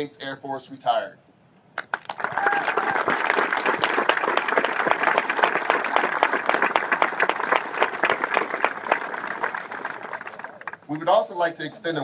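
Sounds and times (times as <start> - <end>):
crowd applauding: 1.8 - 11.0.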